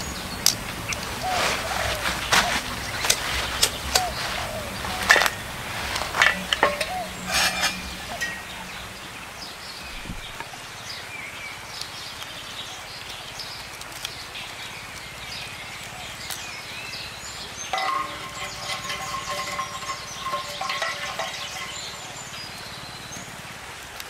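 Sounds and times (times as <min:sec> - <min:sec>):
birds chirping: 0:00.0 - 0:12.1, 0:16.5 - 0:23.4
firewood sticks knocking: 0:00.4 - 0:10.5, 0:17.7 - 0:22.4.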